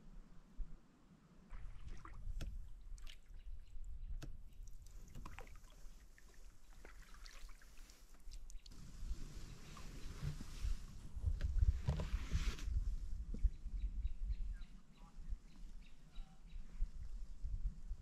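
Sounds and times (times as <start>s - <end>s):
water drips and splashes: 1.5s - 8.8s.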